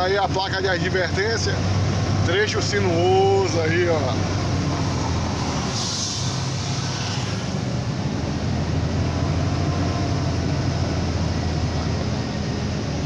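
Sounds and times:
diesel truck engine running: 0.0 - 13.0.

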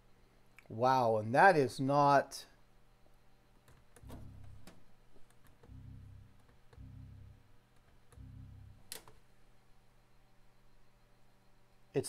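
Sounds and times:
computer system sounds on speakers: 3.7 - 9.7.

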